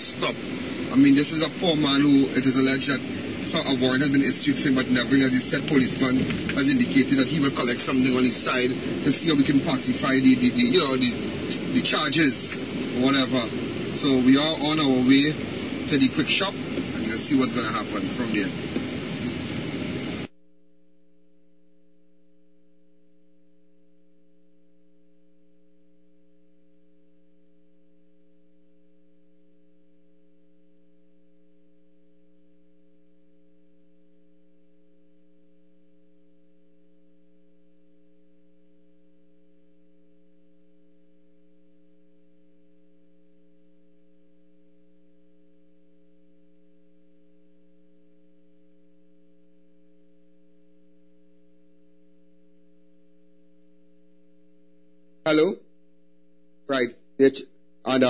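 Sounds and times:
electrical mains hum: 0.0s - 20.3s.

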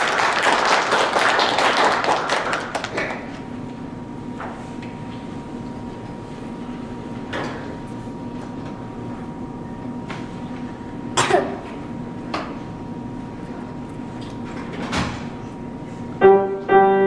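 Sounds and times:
steady low hum: 0.0s - 17.0s
person coughing: 11.2s - 11.8s.

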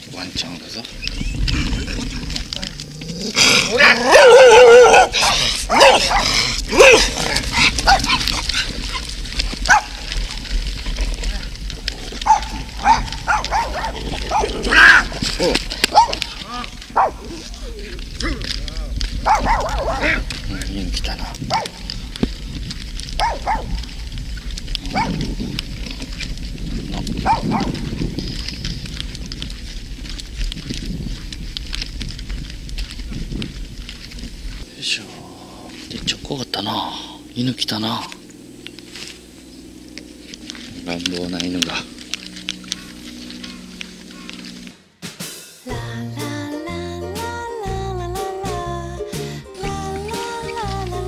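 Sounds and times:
dog barking: 3.7s - 9.0s, 9.7s - 10.0s, 12.2s - 15.1s, 15.9s - 16.3s, 17.0s - 17.3s, 19.2s - 20.3s, 21.2s - 21.8s, 23.2s - 23.8s, 24.9s - 25.2s, 27.2s - 27.8s
dog yipping: 3.8s - 7.0s, 9.7s - 10.0s, 12.2s - 15.0s, 15.9s - 16.3s, 19.2s - 20.2s, 23.2s - 23.8s, 27.2s - 27.7s.

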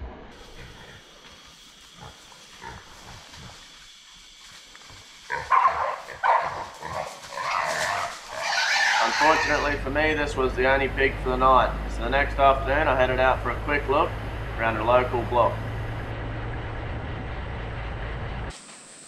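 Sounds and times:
pig squealing: 0.4s - 1.1s, 2.0s - 3.6s, 5.3s - 10.2s.

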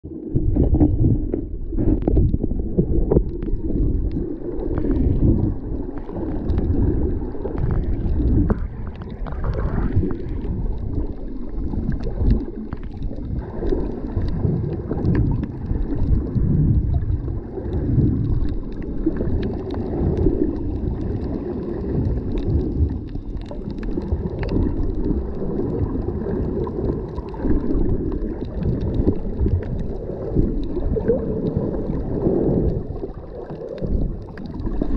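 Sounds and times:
muffled underwater rumble: 0.0s - 34.9s
water sloshing: 0.2s - 34.9s.

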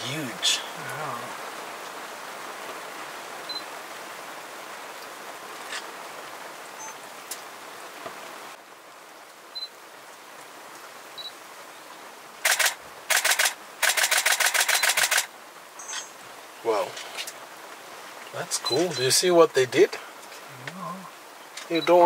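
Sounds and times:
steady background hiss: 0.0s - 22.0s
camera shutter bursts: 12.4s - 15.3s.

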